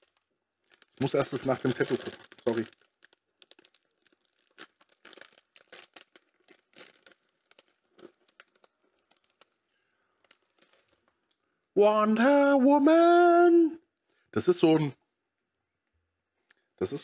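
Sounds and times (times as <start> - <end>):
plastic packaging crinkling: 0.0 - 11.6.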